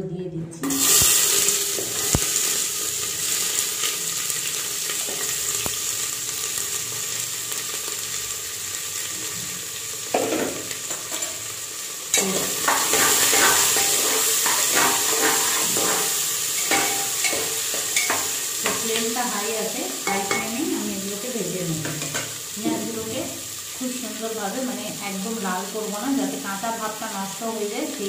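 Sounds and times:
onions sizzling in oil: 0.6 - 28.0
spatula scraping a pan: 12.2 - 18.8.

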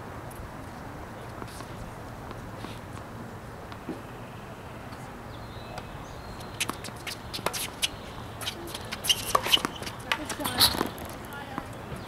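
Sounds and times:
shoes squeaking on court: 5.7 - 12.0
tennis ball bouncing and struck: 6.5 - 11.7.

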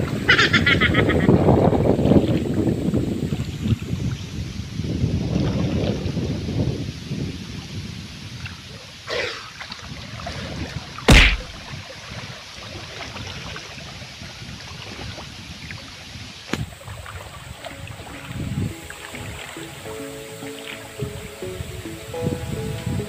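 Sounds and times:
water sloshing and splashing: 9.4 - 21.8
sharp loud knock: 11.1 - 11.6.

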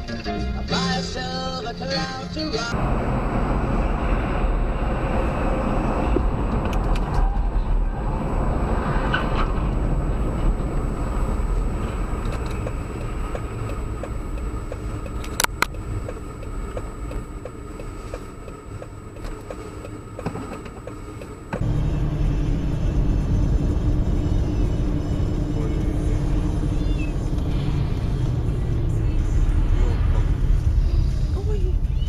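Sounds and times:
car engine and road noise: 0.0 - 32.0.

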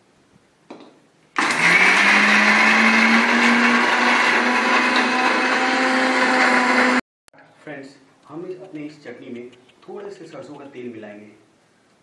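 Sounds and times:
mixer grinder running: 1.4 - 7.0.

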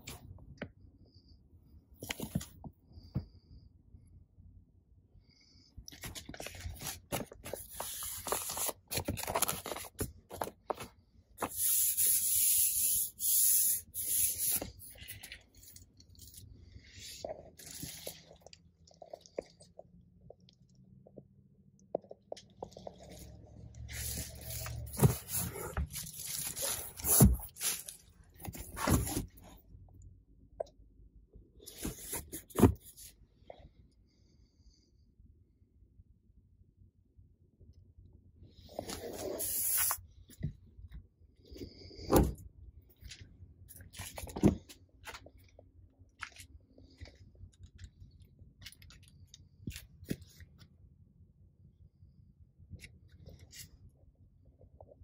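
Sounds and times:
plastic wrapping crinkling: 24.0 - 29.2.

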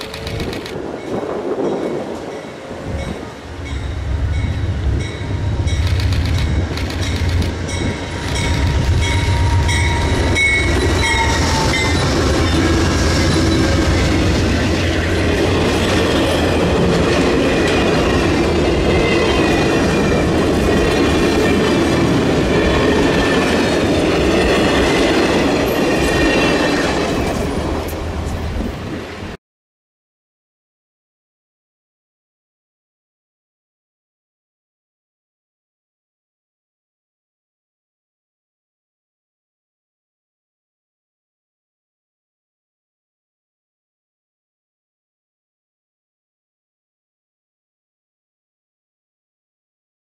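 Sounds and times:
clickety-clack of train wheels: 0.0 - 2.4, 5.7 - 29.0
diesel locomotive rumbling: 0.0 - 29.4.

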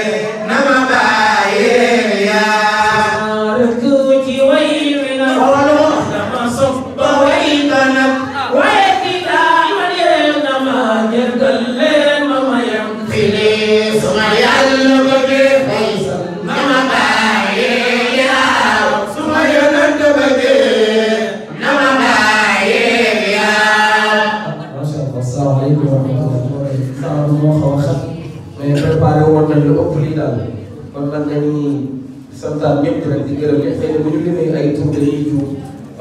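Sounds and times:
men chanting into microphones: 0.0 - 24.7.

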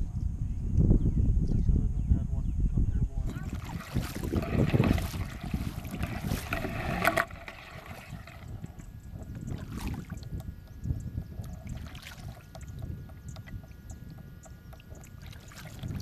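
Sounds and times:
wind buffeting microphone: 0.0 - 16.0
water lapping against kayak hull: 3.2 - 16.0
low rumble with faint ticks: 8.5 - 11.7, 12.3 - 15.2.

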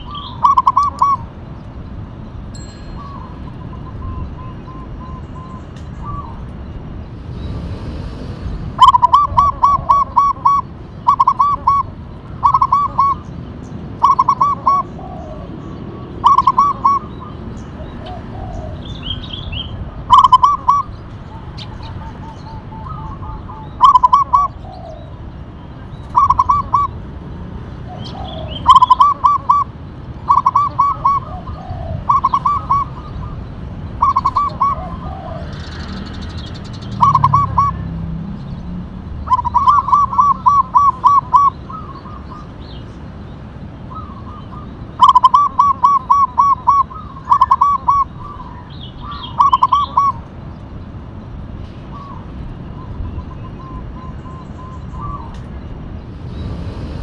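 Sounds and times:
dove cooing: 0.0 - 1.3, 8.8 - 13.3, 14.0 - 19.2, 20.1 - 25.2, 26.1 - 27.0, 27.8 - 33.4, 34.0 - 36.0, 36.9 - 37.9, 39.2 - 42.5, 43.9 - 50.2.

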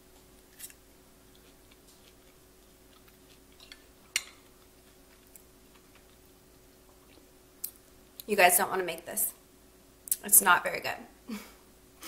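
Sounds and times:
person chewing food: 0.1 - 8.2.

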